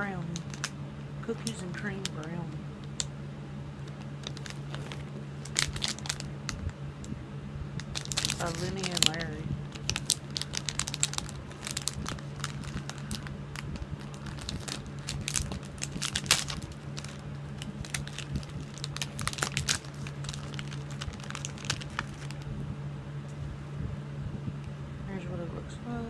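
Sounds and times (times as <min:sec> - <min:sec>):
plastic wrapper crinkling: 0:00.0 - 0:00.8, 0:03.8 - 0:06.8, 0:07.8 - 0:22.5
steady low hum: 0:00.0 - 0:26.0.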